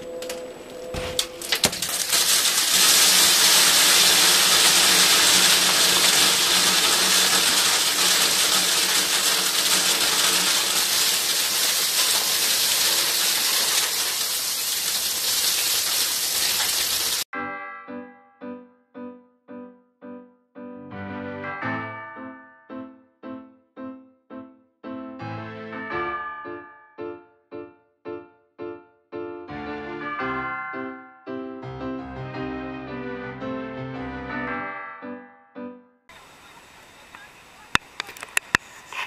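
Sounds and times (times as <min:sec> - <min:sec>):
loose pieces showering down: 0:01.2 - 0:17.2.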